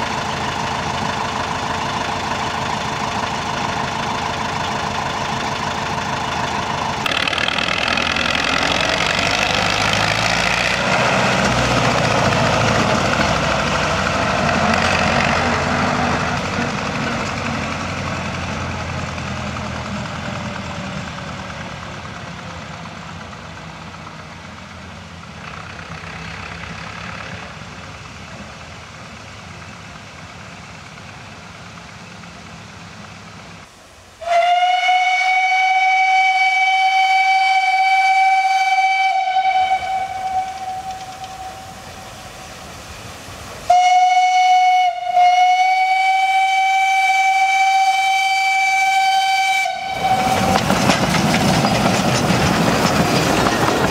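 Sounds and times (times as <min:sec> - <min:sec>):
diesel locomotive engine running: 0:00.0 - 0:53.9
steam locomotive whistle: 0:06.9 - 0:17.1, 0:34.2 - 0:42.9, 0:43.6 - 0:50.8.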